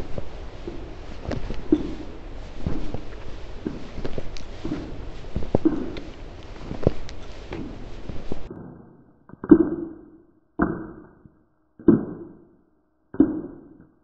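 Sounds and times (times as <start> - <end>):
heavy armoured footsteps: 0.0 - 8.5
light steps on forest floor: 0.0 - 8.5.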